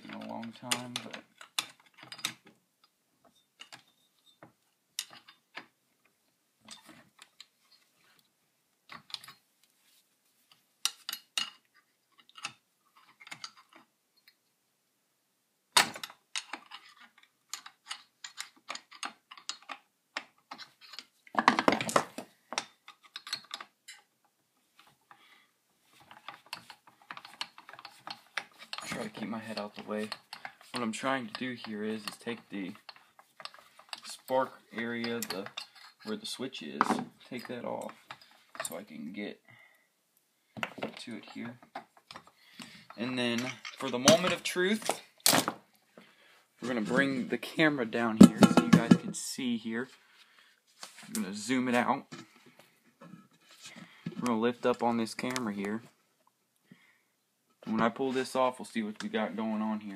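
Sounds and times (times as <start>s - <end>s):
small parts clicking and rattling: 0.0s - 5.7s, 10.8s - 14.4s, 15.8s - 25.3s, 25.9s - 38.9s, 40.6s - 45.4s.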